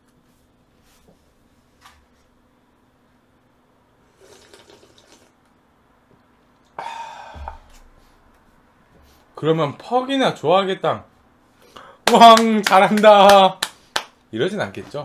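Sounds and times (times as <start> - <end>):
man slurping soup: 4.1 - 5.3.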